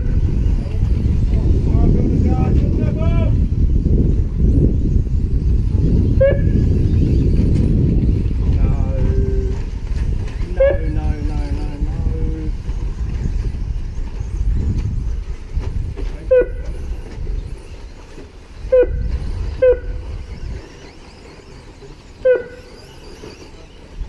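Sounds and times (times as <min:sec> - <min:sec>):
low rumble: 0:00.0 - 0:17.6.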